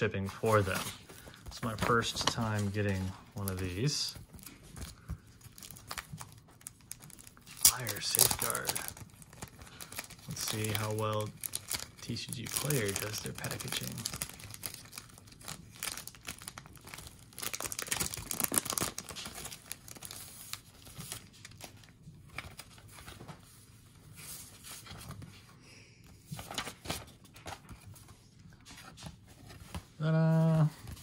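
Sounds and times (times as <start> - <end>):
paper rustling and crinkling: 0.2 - 30.0, 30.7 - 31.0
paper tearing: 7.5 - 9.0.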